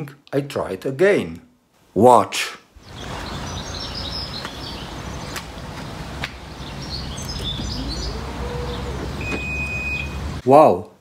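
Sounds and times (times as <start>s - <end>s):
birds chirping: 2.8s - 10.4s
tailgate motor whine: 7.2s - 10.2s
short high beep: 9.2s - 10.2s.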